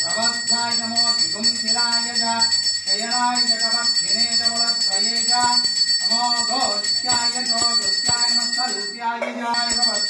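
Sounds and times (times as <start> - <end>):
hand bell ringing: 0.0 - 10.0.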